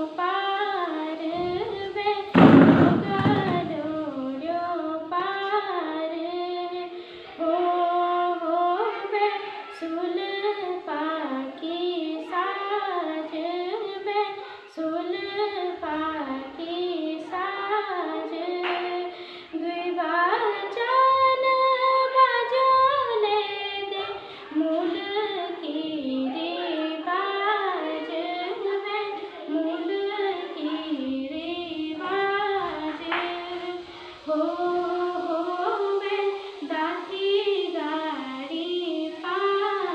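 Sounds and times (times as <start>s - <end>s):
girl singing unaccompanied: 0.0s - 39.9s.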